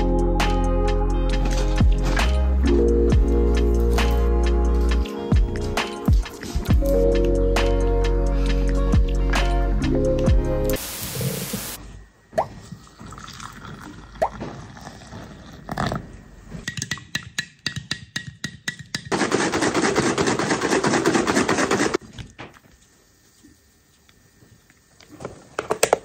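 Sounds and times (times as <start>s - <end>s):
hot water pouring into mug: 12.9s - 15.6s.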